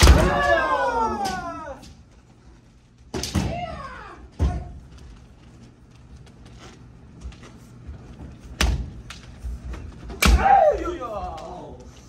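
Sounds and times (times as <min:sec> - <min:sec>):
person shouting: 0:00.0 - 0:01.9, 0:10.2 - 0:11.8.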